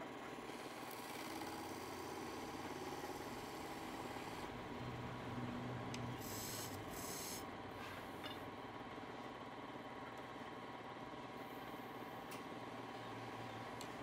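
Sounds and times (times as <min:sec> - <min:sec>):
wood lathe running: 0:00.2 - 0:04.6.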